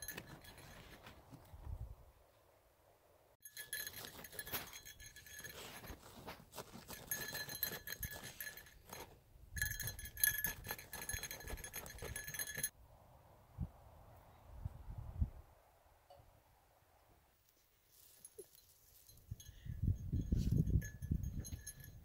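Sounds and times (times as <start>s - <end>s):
dog scraping dirt: 3.6s - 9.2s.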